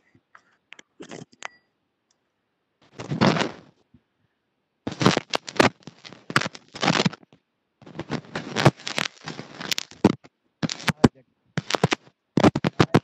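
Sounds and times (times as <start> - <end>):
clothing rubbing on clip-on microphone: 2.9 - 3.8, 4.9 - 13.0.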